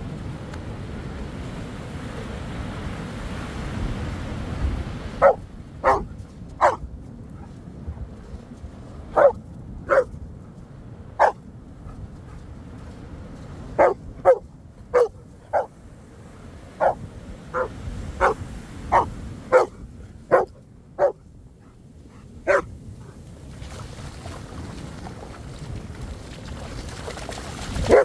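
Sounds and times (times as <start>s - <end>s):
wind: 0.0s - 28.0s
dog barking excitedly: 5.2s - 6.8s, 9.2s - 10.1s, 11.2s - 11.4s, 13.8s - 15.7s, 16.8s - 21.2s, 22.5s - 22.7s
surf rushing: 12.8s - 21.2s, 22.3s - 28.0s.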